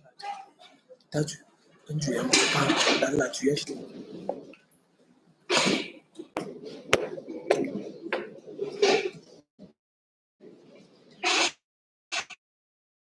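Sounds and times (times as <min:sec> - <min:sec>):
bursts of voices: 0:00.0 - 0:04.4.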